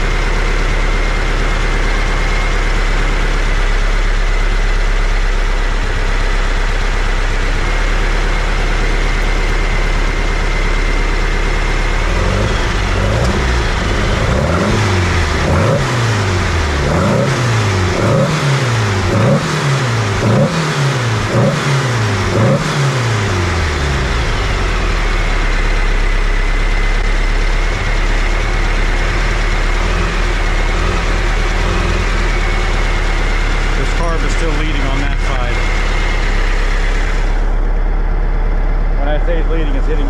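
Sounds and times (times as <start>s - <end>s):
car engine idling: 0.0s - 40.0s
car engine revving: 7.0s - 40.0s.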